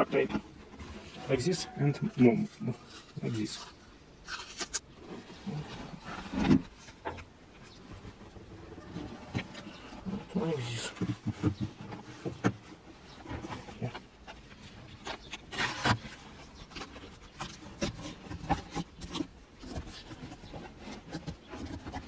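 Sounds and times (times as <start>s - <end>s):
clicks and rustles: 2.0s - 22.0s
hands rubbing tape on plastic: 2.8s - 8.4s.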